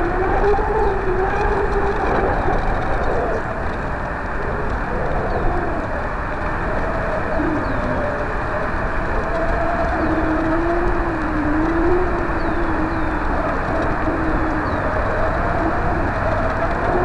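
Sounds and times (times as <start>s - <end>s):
distant ice cream truck drone: 0.0s - 17.0s
wind buffeting microphone: 0.0s - 17.0s.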